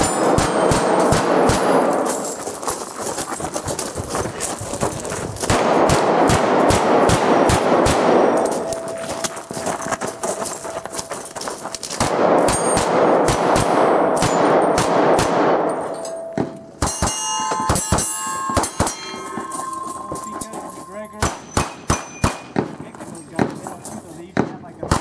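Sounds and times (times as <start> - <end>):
steel plate targets clanging: 0.0 - 2.7, 12.4 - 13.1, 14.1 - 14.8, 15.6 - 22.6.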